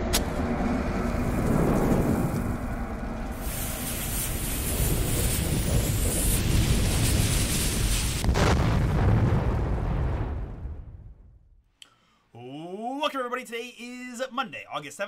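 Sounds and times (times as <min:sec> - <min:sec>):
low steady rumble: 0:00.0 - 0:08.3
bomb fuse sizzling hiss: 0:01.0 - 0:08.5.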